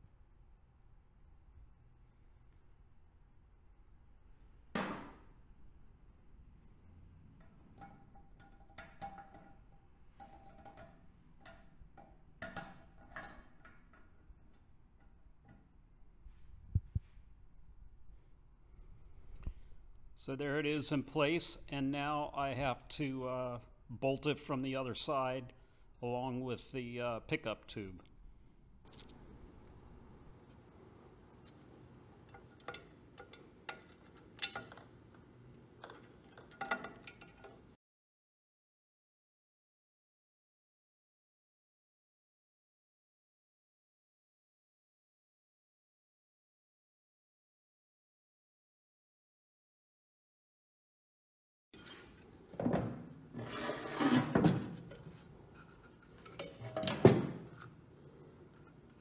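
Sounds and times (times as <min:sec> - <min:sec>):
light metallic clicks and clinks: 0:28.8 - 0:29.3, 0:35.8 - 0:37.7
metal clunks and scraping: 0:51.8 - 0:59.0.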